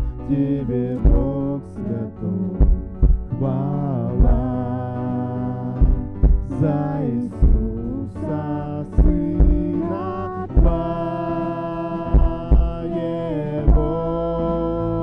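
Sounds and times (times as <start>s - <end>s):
kick drum beat: 0.0s - 0.3s, 1.0s - 1.5s, 2.6s - 3.6s, 4.2s - 4.8s, 5.8s - 8.3s, 8.9s - 11.2s, 12.1s - 13.0s, 13.6s - 14.3s
person singing: 0.0s - 15.0s
worship band music: 0.0s - 15.0s.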